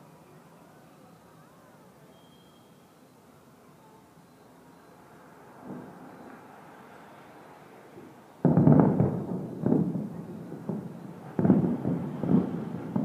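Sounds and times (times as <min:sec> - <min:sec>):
distant fireworks booming: 0:05.2 - 0:07.3, 0:08.0 - 0:13.0.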